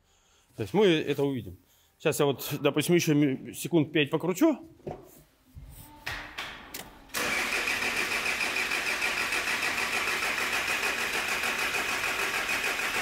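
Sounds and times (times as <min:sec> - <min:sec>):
starter motor cranking engine: 0:07.1 - 0:13.0.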